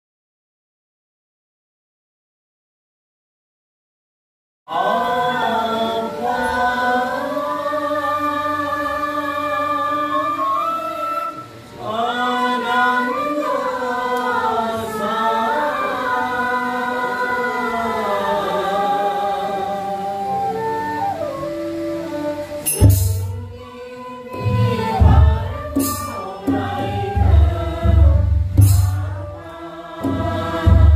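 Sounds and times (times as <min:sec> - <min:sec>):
group singing prayer song: 0:04.7 - 0:20.7, 0:23.7 - 0:30.9.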